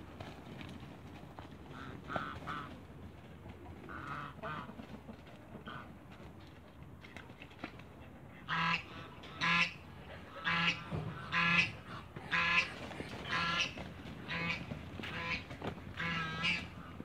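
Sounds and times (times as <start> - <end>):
geese honking: 1.7 - 2.8, 3.8 - 4.8, 5.6 - 6.0, 8.4 - 17.0.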